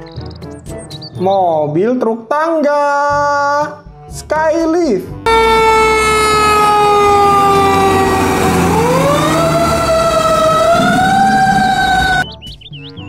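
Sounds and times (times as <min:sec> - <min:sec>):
fire truck siren wailing: 0:05.3 - 0:12.2.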